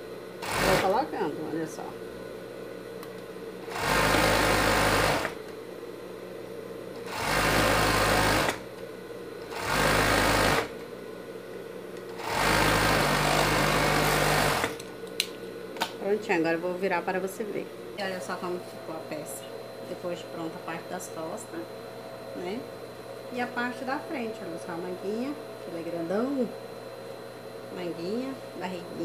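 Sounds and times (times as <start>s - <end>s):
sewing machine running: 0.4s - 1.0s, 3.7s - 5.4s, 7.0s - 8.6s, 9.5s - 10.7s, 12.2s - 14.8s.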